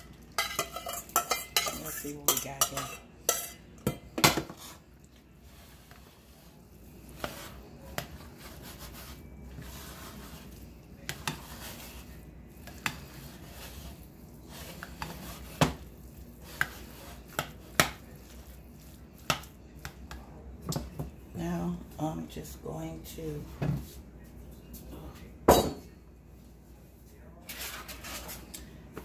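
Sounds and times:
spoon stirring food in bowl: 0.0 - 21.2.

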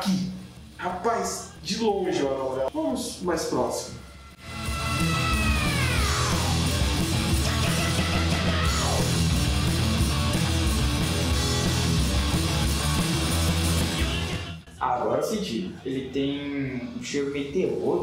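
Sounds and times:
heavy rock music with electric guitar: 4.1 - 14.6.

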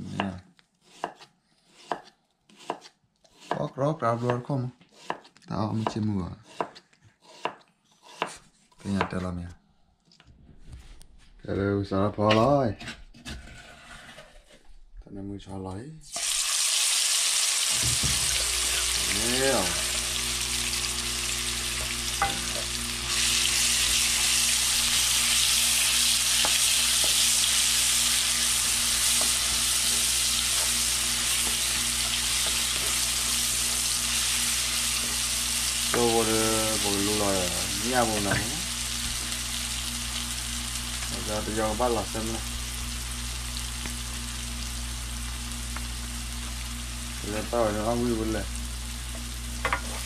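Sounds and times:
oil sizzling in frying pan: 16.1 - 50.0.

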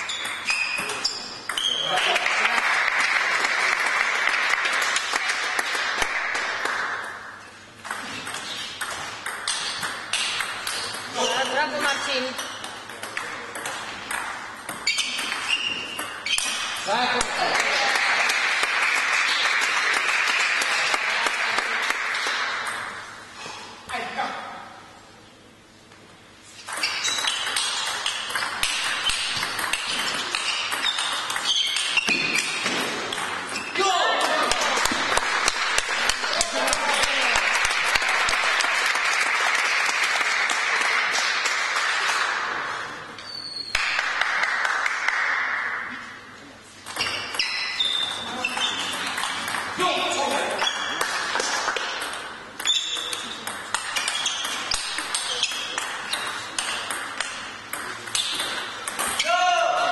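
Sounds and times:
spectators applauding: 1.9 - 6.9, 17.4 - 22.4, 34.2 - 42.2.

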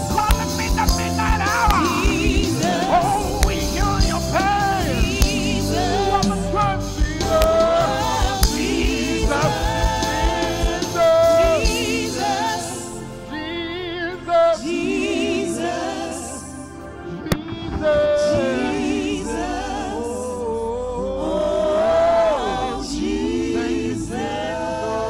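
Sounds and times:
band accompaniment: 0.0 - 12.8, 17.0 - 19.8
gospel choir singing with vibrato: 0.0 - 25.0
steady kick drum beat: 0.1 - 12.2.

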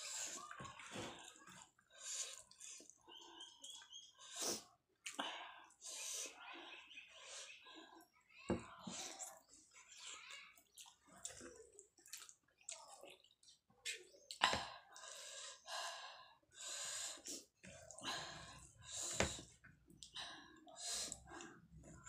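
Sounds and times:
wet squishing of fingers mixing food: 0.0 - 5.6, 9.0 - 15.0
chewing: 9.0 - 14.4.

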